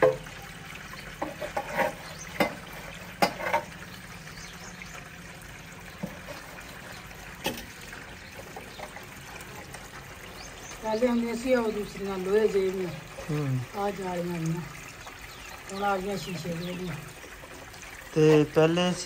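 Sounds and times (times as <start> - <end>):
water trickling: 0.0 - 19.0.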